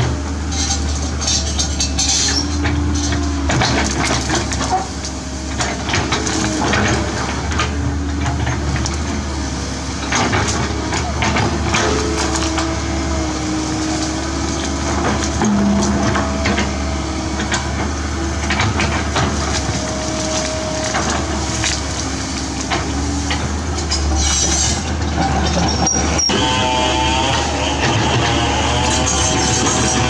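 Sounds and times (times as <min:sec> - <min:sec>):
excavator diesel engine: 0:00.0 - 0:30.0
hydraulic whine: 0:10.2 - 0:30.0.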